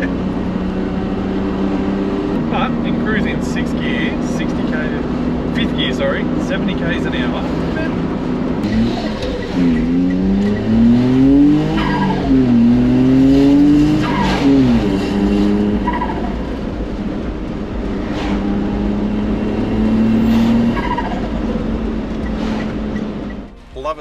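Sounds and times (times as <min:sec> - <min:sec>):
truck engine revving: 0:00.0 - 0:24.0.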